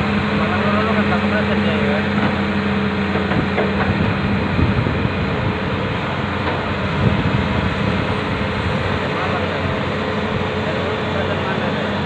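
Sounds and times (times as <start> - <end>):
excavator diesel engine under load: 0.0 - 12.0
knocks and clatter from tracks: 2.1 - 2.4, 3.1 - 4.2.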